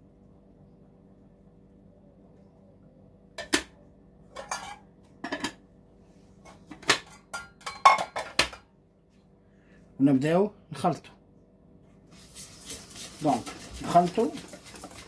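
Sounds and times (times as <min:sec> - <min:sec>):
ceramic bowls clinking: 0:07.1 - 0:08.4.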